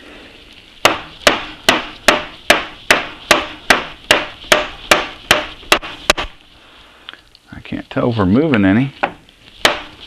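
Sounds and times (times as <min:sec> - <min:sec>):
mallet knocking on metal spindle: 0:00.8 - 0:06.4, 0:09.0 - 0:09.9.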